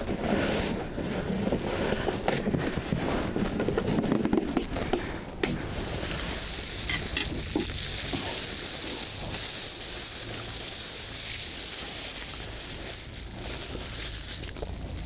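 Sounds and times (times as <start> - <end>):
plastic bag rustling: 4.7 - 15.0
steady high hiss: 5.4 - 15.0.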